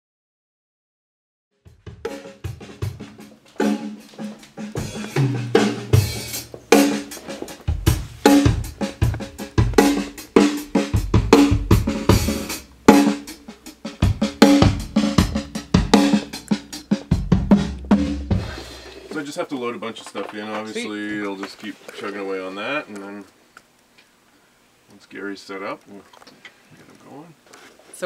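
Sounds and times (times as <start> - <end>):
kick drum: 7.7 - 10.0, 11.0 - 12.3, 17.0 - 18.5.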